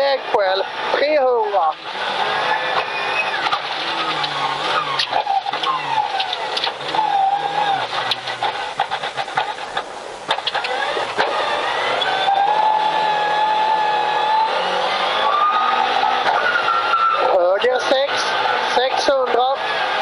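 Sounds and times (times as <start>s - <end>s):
rally car engine: 0.0s - 20.0s
sharp cracks and clatters: 1.7s - 11.4s.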